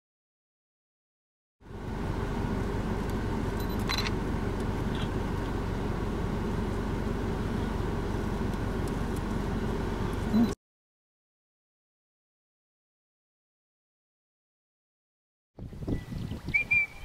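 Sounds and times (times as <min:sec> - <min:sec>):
vehicle engine idling: 0:01.6 - 0:10.6.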